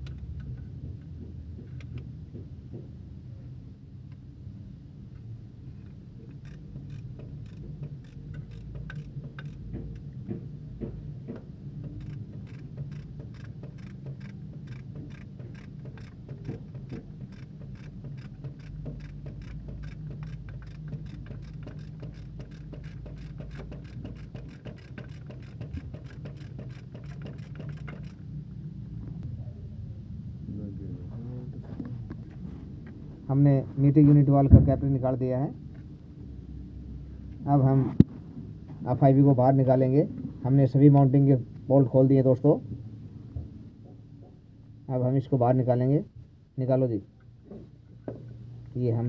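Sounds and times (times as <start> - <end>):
steady low hum: 0.0 - 39.4
ratchet wrench clicking: 6.2 - 10.1, 11.8 - 28.2.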